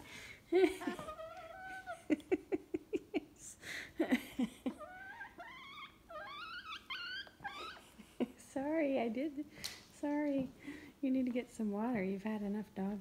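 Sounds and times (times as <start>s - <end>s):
hen squeaky calls: 4.8s - 7.9s.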